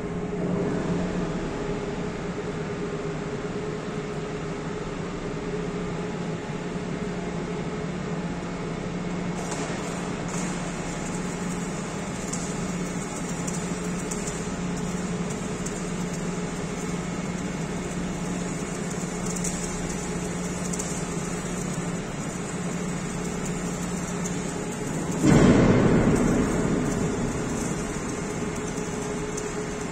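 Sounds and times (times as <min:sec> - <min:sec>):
low machinery hum: 0:00.0 - 0:29.9
welding arc crackling hiss: 0:09.1 - 0:29.9.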